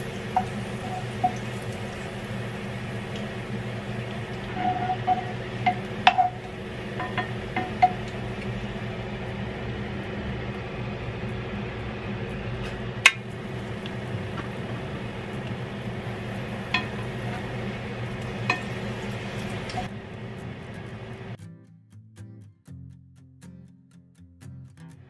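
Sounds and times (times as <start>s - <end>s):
utensil clicking against pan: 0.0s - 8.6s, 13.0s - 15.7s, 16.5s - 19.9s
fish frying in oil sizzling: 0.0s - 21.4s.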